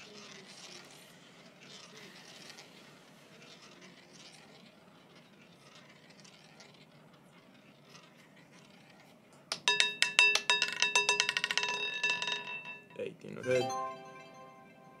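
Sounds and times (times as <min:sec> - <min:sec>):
roulette ball rolling around wheel: 0:00.0 - 0:15.0
roulette ball clattering over frets: 0:09.4 - 0:13.1.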